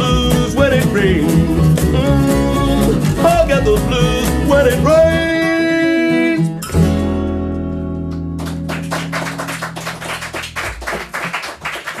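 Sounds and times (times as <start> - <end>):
scattered clapping: 8.0 - 12.0.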